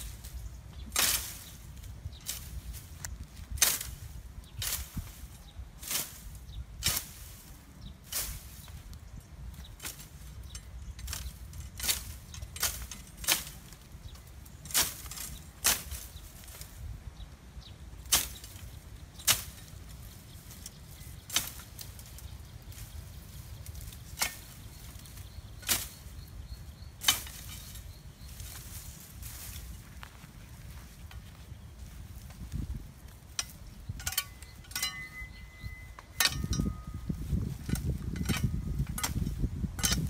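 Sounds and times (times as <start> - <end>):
machete slashing through grass: 0.9 - 1.6, 14.7 - 16.6, 18.0 - 18.6, 19.2 - 19.6.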